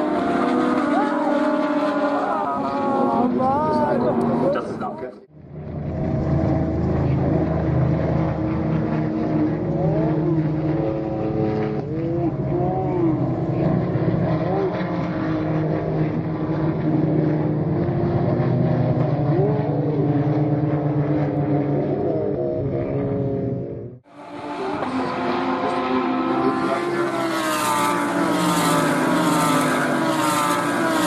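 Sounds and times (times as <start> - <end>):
race car engines: 0.0 - 31.0.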